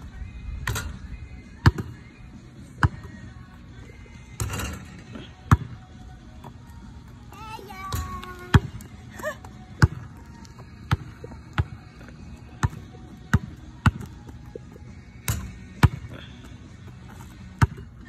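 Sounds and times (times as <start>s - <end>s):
basketball bouncing on asphalt: 1.5s - 3.5s, 5.4s - 7.2s, 7.9s - 14.6s, 15.2s - 16.2s, 16.8s - 18.0s.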